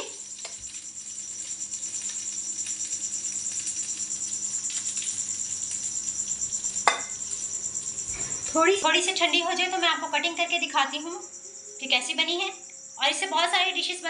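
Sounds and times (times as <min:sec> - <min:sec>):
boiling water bubbling: 0:00.0 - 0:10.8.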